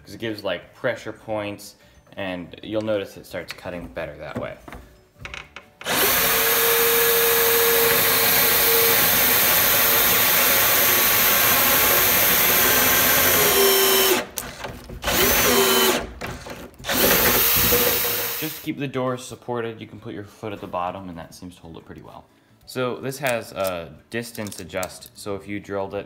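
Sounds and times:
cordless drill boring into wood: 5.8 - 18.7.

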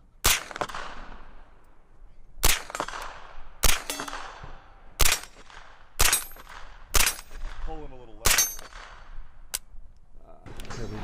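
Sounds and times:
pistol single shots: 0.2 - 1.3, 2.4 - 9.2.

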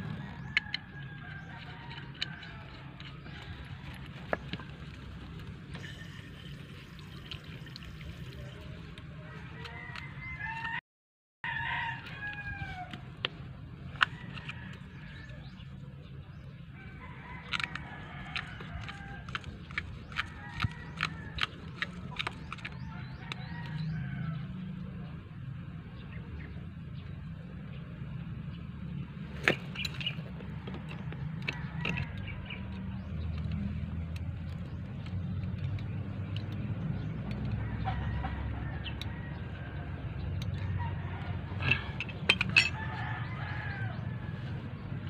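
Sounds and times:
rooster crowing: 9.3 - 10.8, 11.4 - 13.1, 37.6 - 39.9, 40.6 - 44.6
metal fittings clicking and clinking: 41.6 - 42.8.

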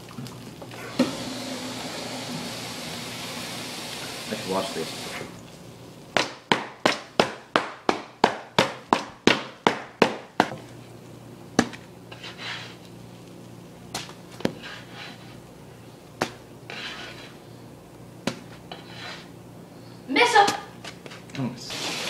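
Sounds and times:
spatula scraping griddle: 12.1 - 12.9, 14.4 - 15.4, 16.6 - 17.5, 18.5 - 19.4.

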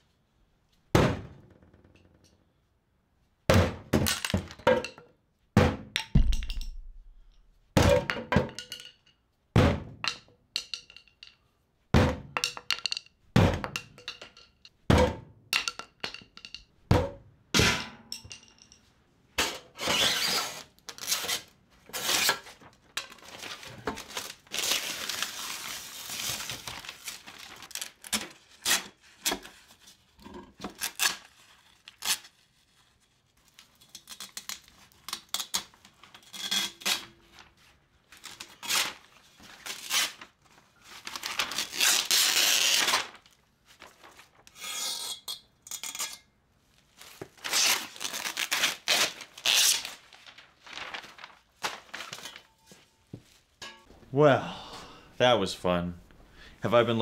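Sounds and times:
mesh crinkling: 22.4 - 28.4, 46.6 - 54.1
mesh ripping: 47.3 - 52.5.

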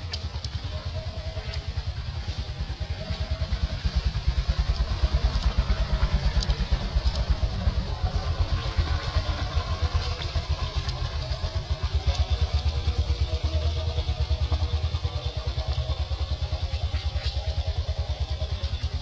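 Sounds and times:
small engine idling: 0.0 - 19.0.

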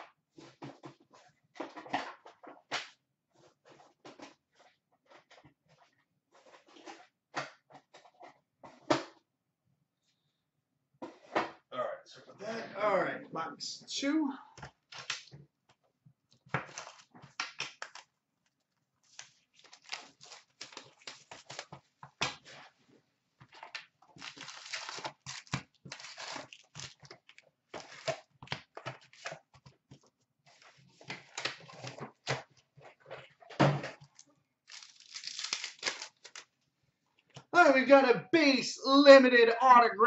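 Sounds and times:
cardboard and foil packs tearing: 19.1 - 21.7, 24.2 - 28.3, 34.6 - 36.5.

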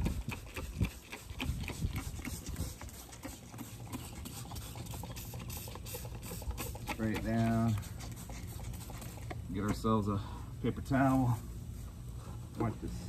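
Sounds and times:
spray bottle spritzes: 3.6 - 6.9.

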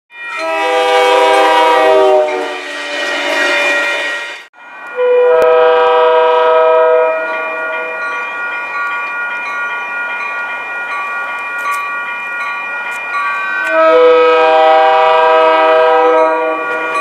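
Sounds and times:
train air horn blasts: 0.4 - 3.2, 4.9 - 8.0, 13.6 - 17.0.

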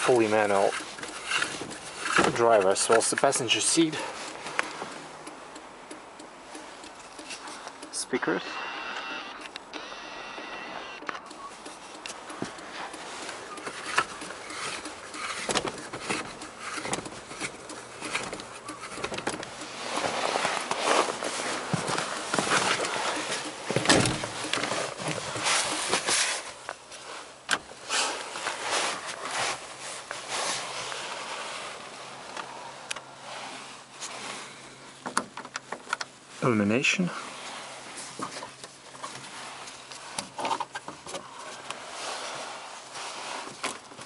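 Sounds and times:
roof light switch clicks: 4.6 - 8.0
camera handling rustling: 11.7 - 26.9.

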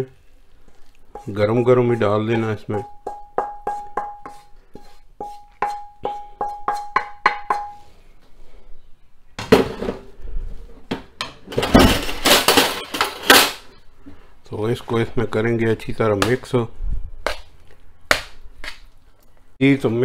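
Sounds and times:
spatula tapping metal pan: 1.1 - 4.4, 5.2 - 7.8
rough clattering and handling: 10.9 - 13.6.

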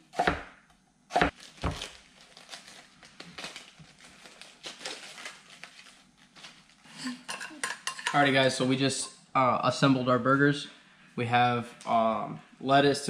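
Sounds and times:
lettuce leaves crinkling and tearing: 1.3 - 7.0.

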